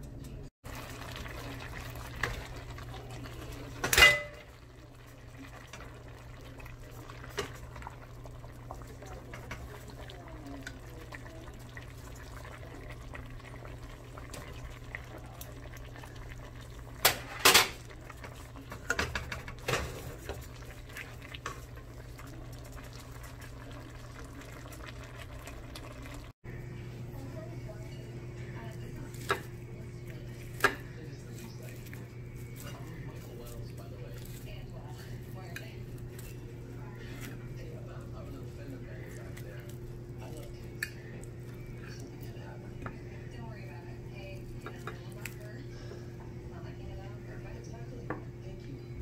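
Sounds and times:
steady low hum: 0:00.0 - 0:49.0
pot bubbling: 0:00.6 - 0:49.0
utensils clinking against pot: 0:03.1 - 0:04.7, 0:17.0 - 0:20.5.

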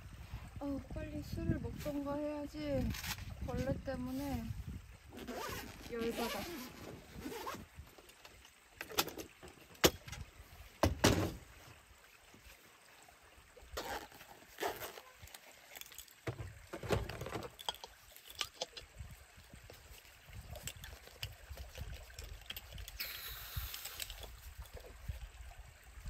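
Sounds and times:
objects knocking and clicking: 0:15.7 - 0:18.9.

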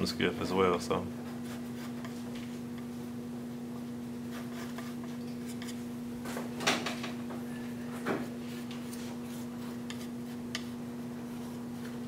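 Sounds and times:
steady low hum: 0:00.0 - 0:12.0
palette knife scraping paint: 0:01.3 - 0:02.3, 0:04.2 - 0:05.9, 0:08.5 - 0:12.0.

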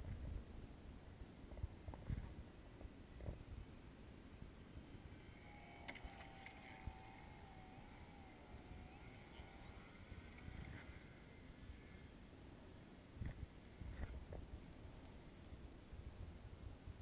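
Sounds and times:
wind rumble on microphone: 0:00.0 - 0:03.7, 0:13.1 - 0:17.0
model plane motor whine: 0:04.7 - 0:12.4.

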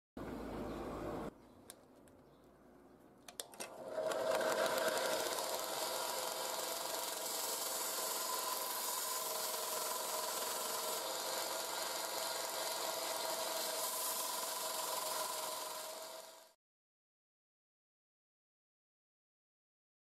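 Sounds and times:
motor hum: 0:03.4 - 0:16.6
metal grinding hiss: 0:04.0 - 0:16.6.

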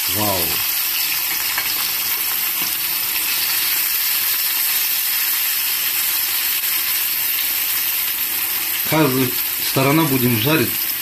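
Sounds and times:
vegetables sizzling in hot oil: 0:00.0 - 0:11.0.

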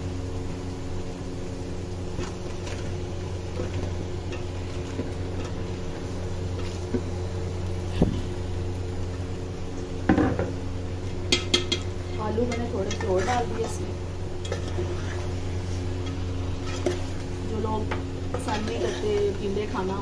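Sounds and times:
steady low hum: 0:00.0 - 0:20.0
spoon and vegetables clinking in pot: 0:11.3 - 0:13.8.

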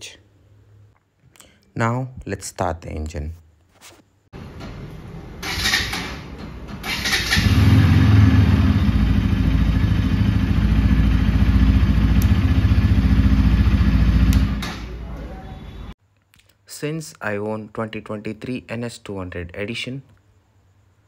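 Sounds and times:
electric starter cranking: 0:05.4 - 0:06.2, 0:06.8 - 0:08.5
motorcycle engine idling: 0:07.4 - 0:15.0.

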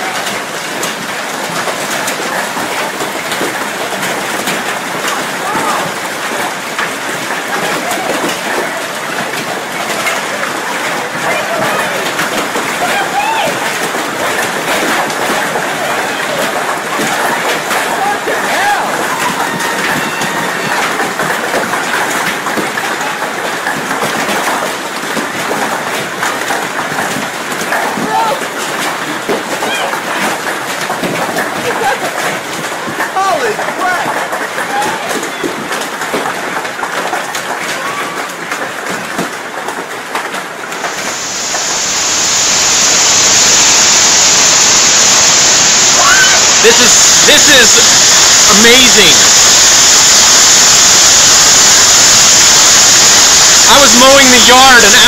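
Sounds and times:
hail pelting tarps: 0:00.0 - 0:55.0.

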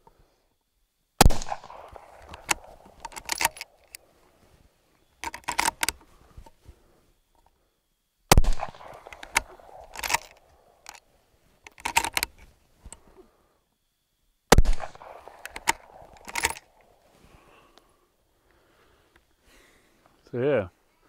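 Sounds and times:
rifle shots with ringing tail: 0:01.2 - 0:03.8, 0:08.3 - 0:10.8, 0:14.5 - 0:17.0
rifle bolt clicks and rattles: 0:01.4 - 0:04.1, 0:05.2 - 0:06.6, 0:08.4 - 0:13.0, 0:14.8 - 0:17.0.

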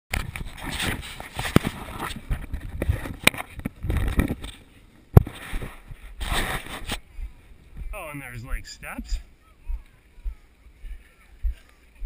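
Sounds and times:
camera rubbing against clothing: 0:00.2 - 0:09.3.

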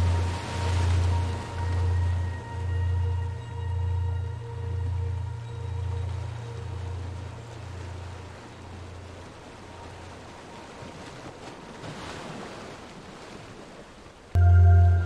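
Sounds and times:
steady wash of noise: 0:00.0 - 0:10.0
low pulsing drone: 0:00.0 - 0:10.4, 0:14.4 - 0:15.0.

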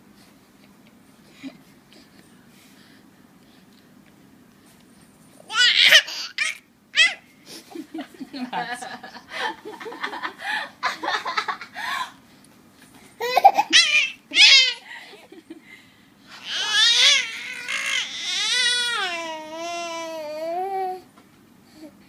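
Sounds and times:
baby laughing: 0:05.5 - 0:07.2, 0:13.2 - 0:14.8
baby squealing: 0:05.5 - 0:07.2, 0:13.2 - 0:14.8, 0:16.4 - 0:19.2.

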